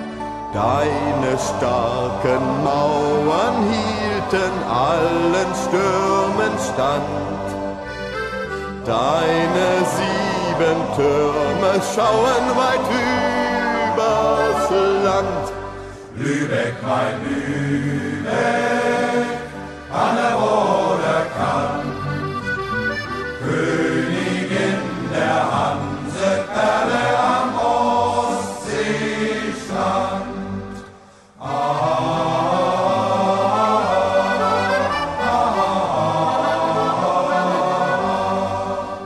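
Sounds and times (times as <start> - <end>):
choir singing: 0.0 - 39.0.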